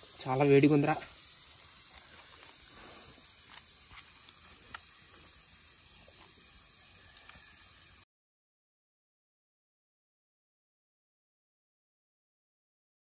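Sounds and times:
steady low hiss: 0.0 - 8.0
leaves rustling and crackling: 1.5 - 5.3.

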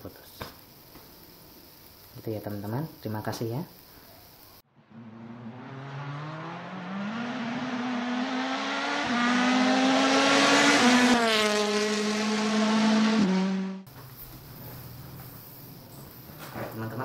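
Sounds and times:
vehicle engine accelerating past: 4.7 - 13.9.

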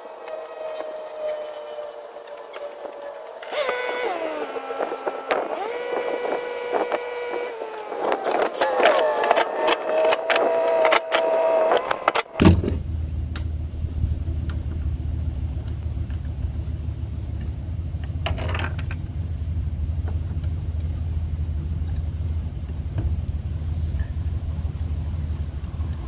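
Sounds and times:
vehicle engine idling: 3.2 - 26.0
cordless drill whine: 3.4 - 12.3.

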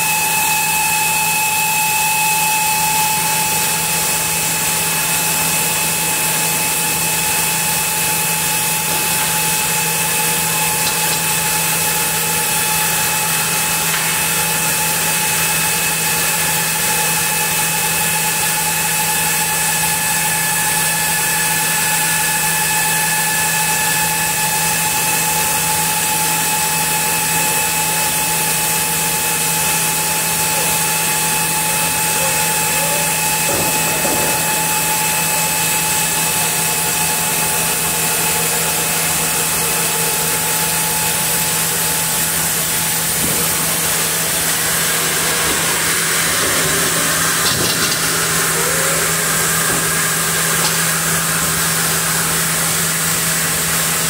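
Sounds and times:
band saw cutting log: 0.0 - 54.0.

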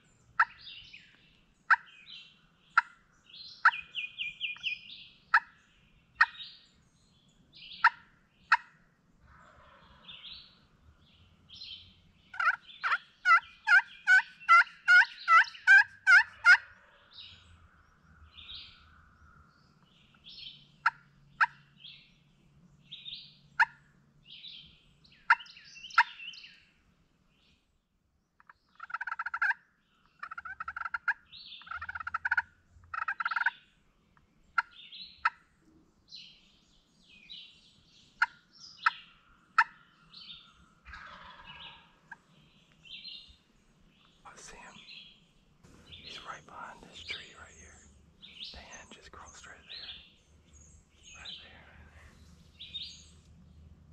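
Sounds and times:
small birds chirping: 0.0 - 53.9
turkey yelping: 12.3 - 17.0, 28.8 - 29.6, 30.2 - 33.5, 40.8 - 42.2.

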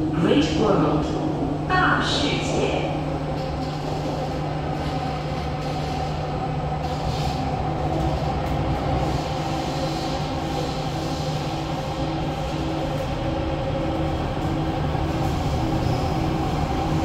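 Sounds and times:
train motors and wheels humming: 0.0 - 17.0.

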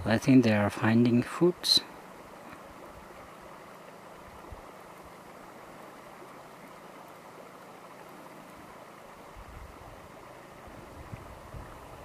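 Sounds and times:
wind noise: 9.3 - 10.0, 10.6 - 12.0.

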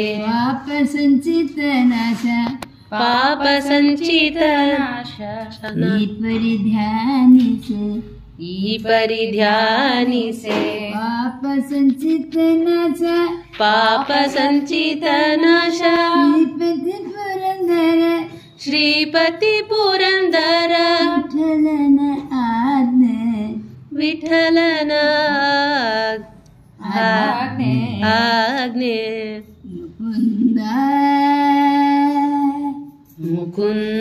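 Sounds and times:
old man singing devotional song: 5.2 - 7.8, 33.1 - 34.0.

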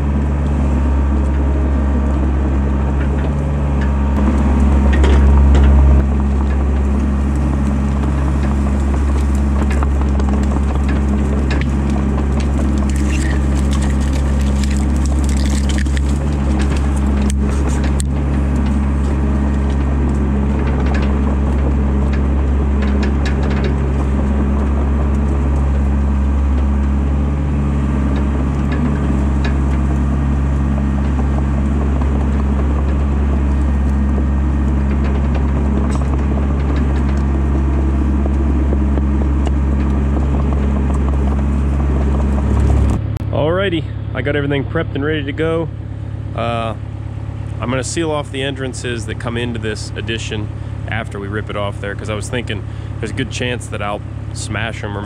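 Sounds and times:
excavator diesel engine: 0.0 - 55.0
branches cracking and snapping: 0.1 - 43.0.

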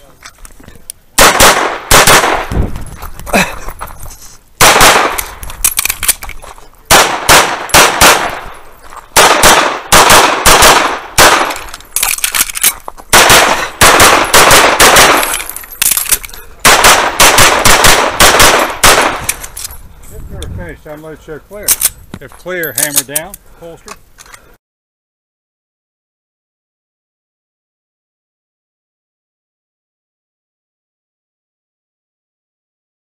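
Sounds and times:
pistol firing: 1.2 - 2.6, 4.6 - 5.4, 6.9 - 8.5, 9.2 - 11.7, 13.1 - 15.5, 16.6 - 19.4.

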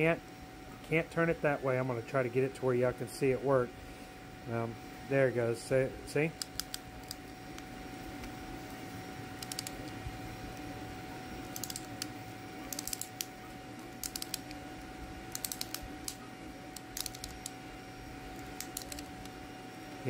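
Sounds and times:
faint steady hum: 0.0 - 20.0
ratchet wrench clicking: 12.7 - 13.2, 15.3 - 16.2, 17.0 - 17.5.

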